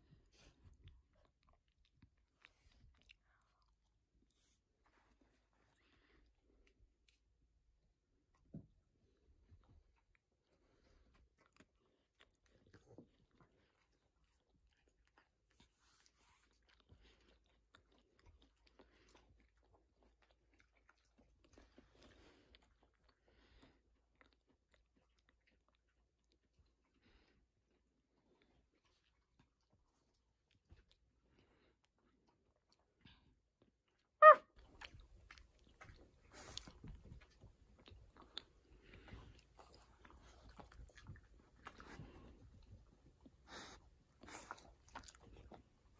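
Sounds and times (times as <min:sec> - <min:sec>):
dog chewing and crunching: 0:09.5 - 0:45.9.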